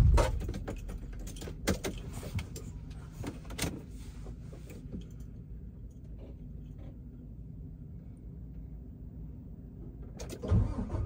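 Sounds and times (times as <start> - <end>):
truck engine idling: 0.0 - 3.0.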